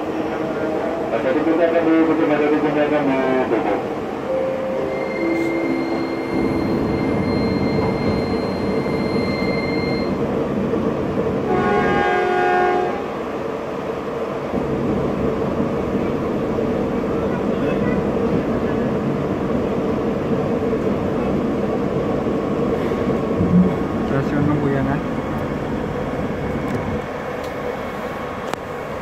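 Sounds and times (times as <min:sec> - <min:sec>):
train hum and rumble: 0:00.0 - 0:29.0
thin high whine: 0:04.3 - 0:10.2
train horn: 0:04.3 - 0:10.2, 0:11.4 - 0:13.2.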